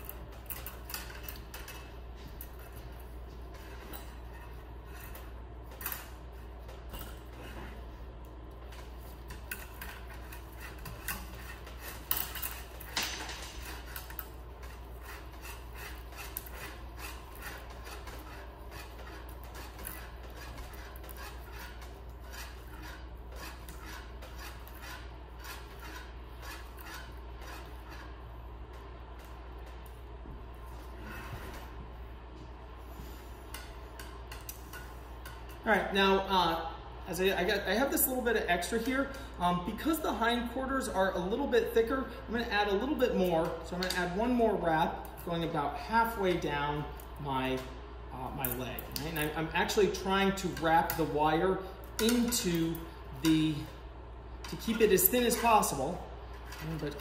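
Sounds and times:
metal wire clicking and rubbing: 0.0 - 30.1, 33.4 - 35.6
low steady hum: 0.0 - 57.0.

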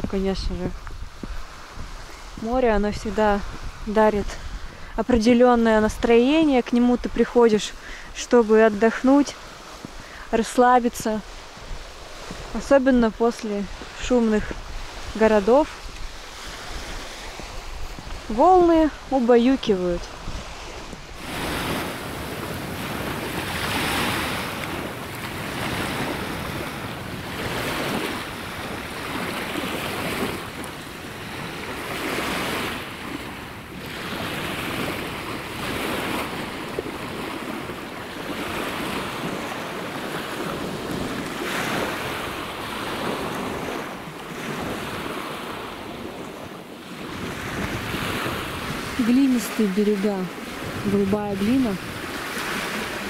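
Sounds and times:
waves washing onto shore: 0.0 - 53.0
wind on microphone: 0.0 - 53.0.

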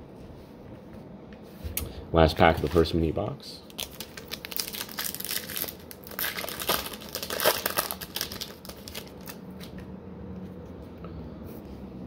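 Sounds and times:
wrapper tearing and crumpling: 3.6 - 9.8.

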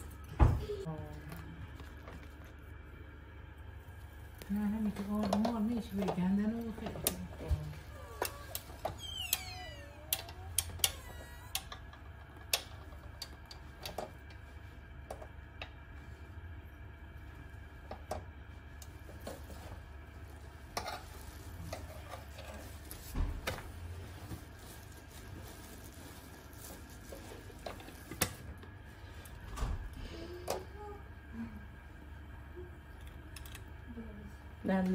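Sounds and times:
steady low hum: 0.0 - 34.9.

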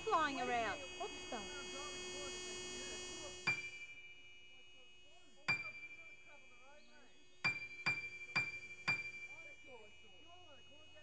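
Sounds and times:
high bell-like chime: 7.4 - 9.6.

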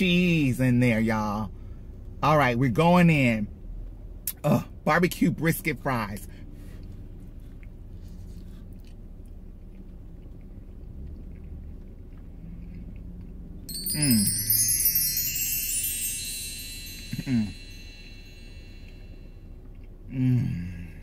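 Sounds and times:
person humming mmm: 13.7 - 15.8, 16.9 - 17.8, 20.1 - 21.0
shimmering chime effect: 13.7 - 19.3.

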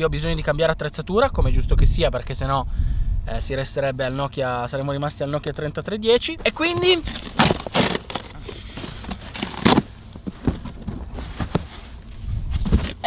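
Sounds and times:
packaging rustling: 6.5 - 13.0.

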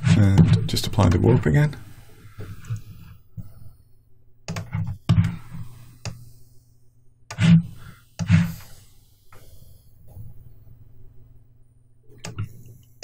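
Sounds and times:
faint low hum: 0.0 - 13.0
computer mouse clicks: 4.5 - 5.4, 6.0 - 6.2, 12.2 - 13.0.

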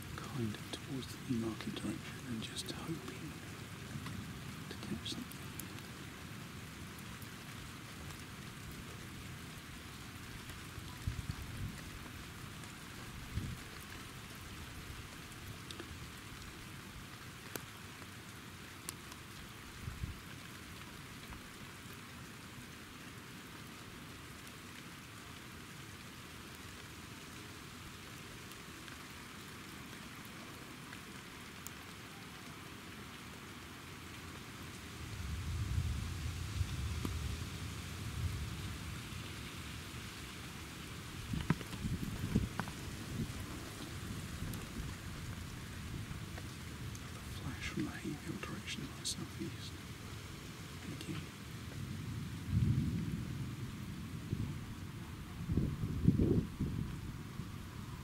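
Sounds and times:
steady rain falling: 0.0 - 58.0.

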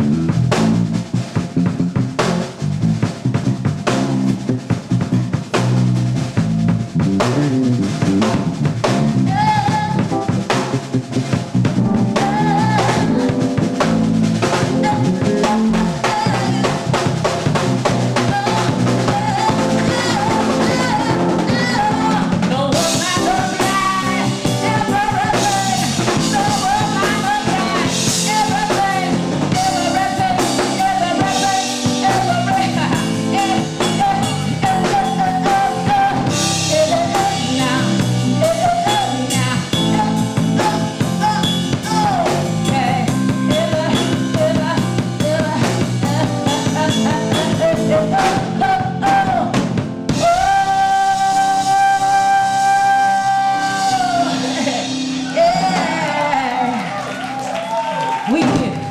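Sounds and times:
band playing: 0.0 - 58.9
woman singing: 9.3 - 10.1, 12.0 - 13.6, 14.4 - 17.2, 18.1 - 56.8.

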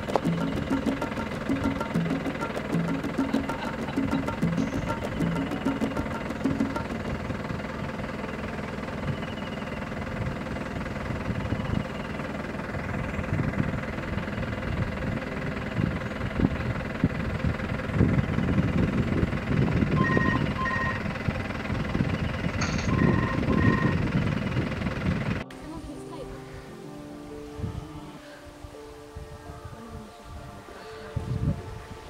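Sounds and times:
engine idling: 0.0 - 26.7
low buffeting: 0.0 - 32.0
short high beeps: 20.0 - 21.1, 22.6 - 24.0.

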